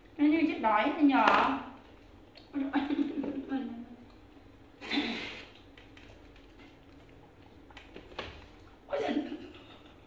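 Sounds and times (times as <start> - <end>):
monkeys chewing wet smacks: 5.5 - 8.8.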